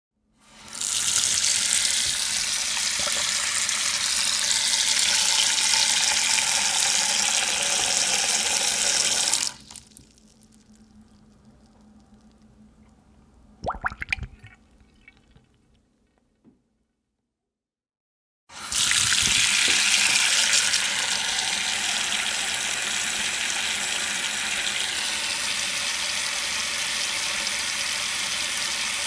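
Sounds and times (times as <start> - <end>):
faucet running: 0.5 - 10.2, 18.5 - 29.0
water trickling and dripping: 2.0 - 3.4, 9.6 - 13.0, 13.6 - 15.6.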